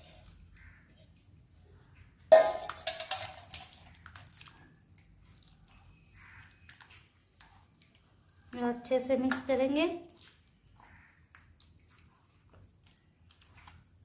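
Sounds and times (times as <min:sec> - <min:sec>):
hand mixing wet batter: 0:00.0 - 0:14.0
steel bowls clanging: 0:02.3 - 0:03.8
clinks and scrapes of bowl: 0:02.3 - 0:04.2.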